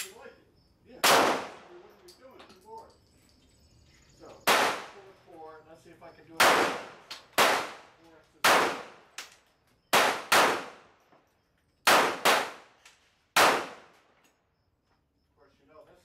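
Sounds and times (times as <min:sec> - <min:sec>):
gunshots: 0:01.0 - 0:01.8, 0:04.4 - 0:05.1, 0:06.4 - 0:09.2, 0:09.9 - 0:11.0, 0:11.8 - 0:14.0.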